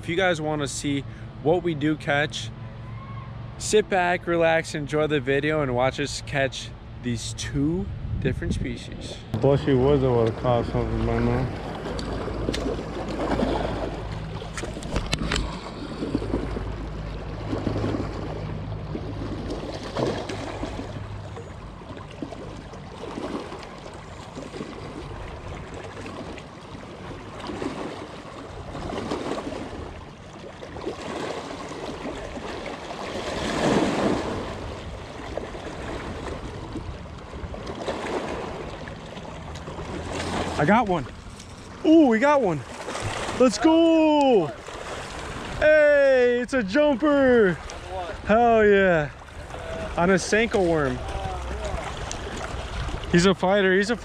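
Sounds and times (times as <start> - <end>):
low wind rumble: 5.1 - 21.8, 33.4 - 54.0
waves lapping against rocks: 9.4 - 54.0.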